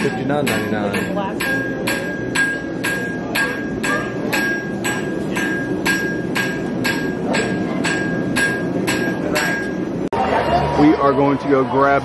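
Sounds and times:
hammer striking metal on anvil: 0.0 - 10.1.

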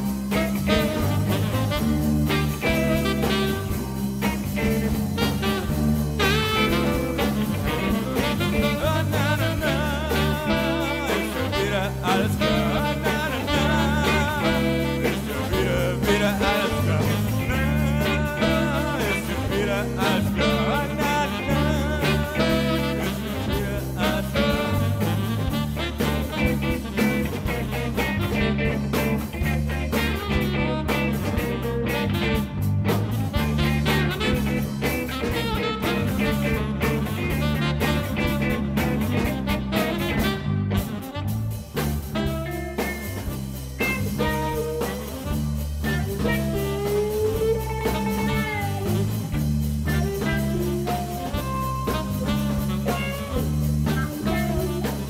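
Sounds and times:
repeating bass line: 0.0 - 55.0
person singing: 7.6 - 32.0.

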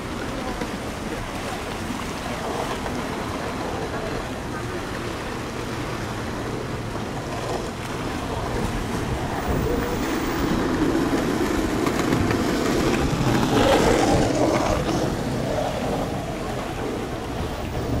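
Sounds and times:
sea noise: 0.0 - 18.0
wind on microphone: 6.3 - 18.0.

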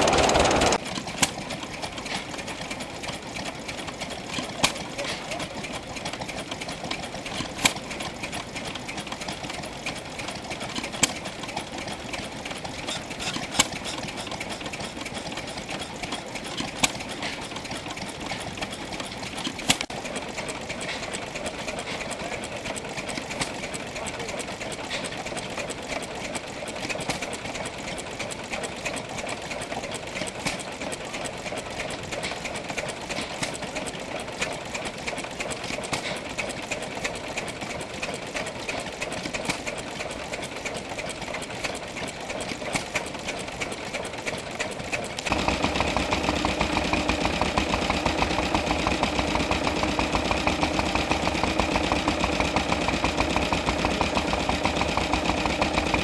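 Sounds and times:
second engine deep steady beat: 0.0 - 10.0, 37.4 - 56.0
stationary engine clattering: 0.0 - 56.0.

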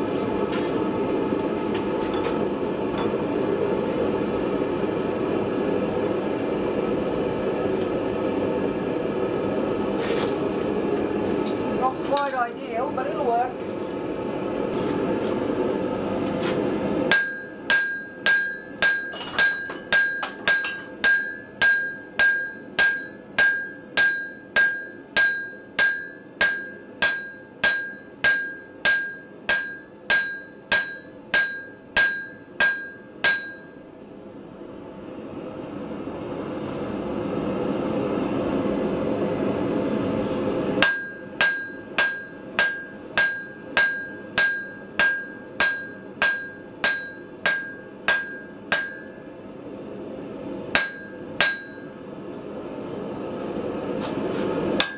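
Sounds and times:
hammer blows on anvil: 17.1 - 33.8, 40.8 - 49.3, 50.8 - 51.9
high ring from anvil: 17.1 - 33.8, 40.8 - 49.2, 50.8 - 51.9.

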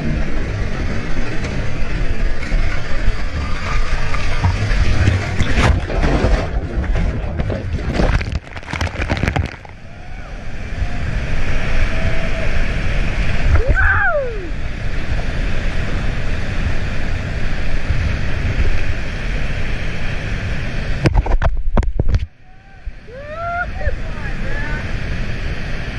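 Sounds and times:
roar of fast water: 0.0 - 21.4
water pounding on microphone: 3.3 - 9.8.

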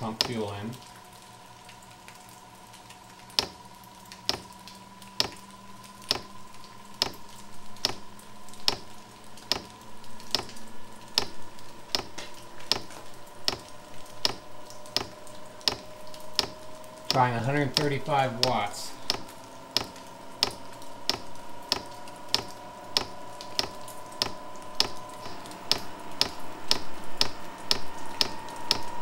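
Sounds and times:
combustion fan whine: 0.0 - 29.0
fuel pump ticking: 8.6 - 9.7, 10.3 - 28.9.

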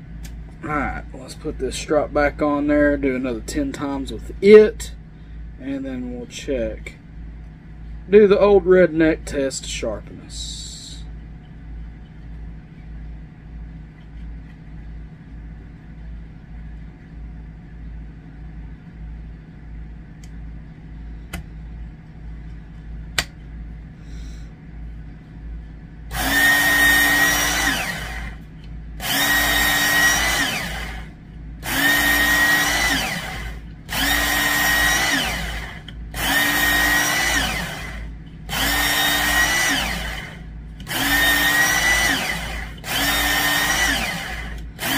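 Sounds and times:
faint low hum: 0.0 - 44.9
sharpener motor whine: 26.1 - 44.9.

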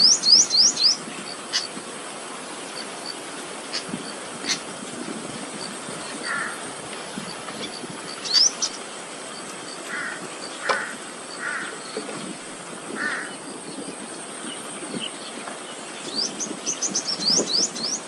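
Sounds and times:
birds cawing: 6.1 - 6.8, 9.8 - 12.1, 12.9 - 13.5.

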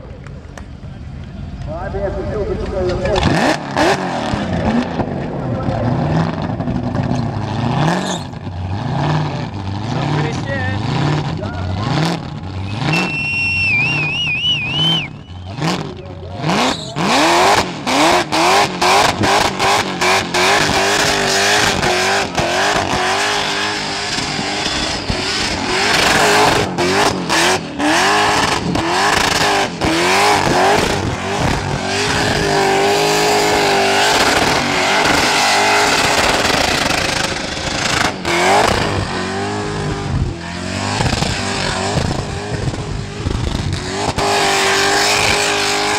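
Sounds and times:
engine revving: 2.0 - 45.9
tyres squealing: 12.8 - 17.2.

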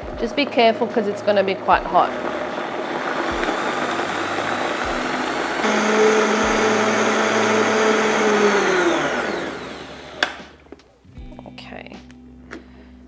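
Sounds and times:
blender motor running: 1.8 - 10.4.

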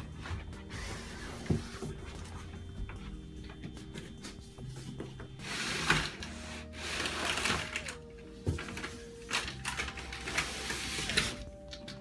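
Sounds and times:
foam and cardboard scraping: 0.0 - 2.7.

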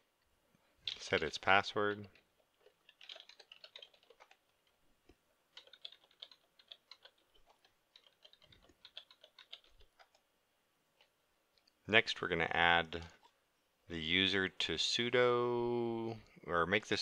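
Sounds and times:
faint keyboard typing: 0.8 - 10.3, 12.8 - 13.4.

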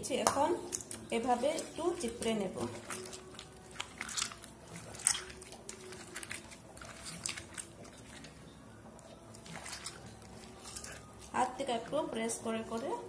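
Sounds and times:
wet squelching of squeezed gourd: 0.5 - 13.0.

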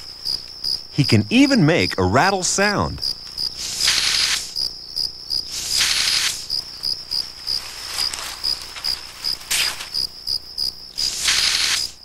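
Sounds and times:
crickets chirping: 0.0 - 12.0
snake hissing: 3.5 - 4.6, 5.4 - 6.5, 11.0 - 12.0.

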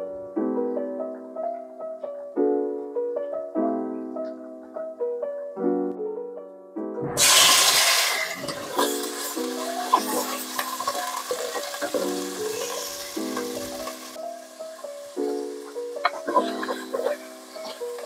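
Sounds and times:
soft piano music: 0.0 - 18.0
food sizzling in hot oil: 7.2 - 18.0.

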